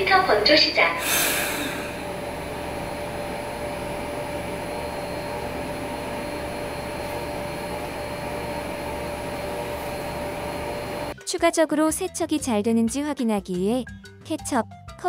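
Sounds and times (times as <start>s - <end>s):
vacuum base fan whirring: 0.0s - 11.2s.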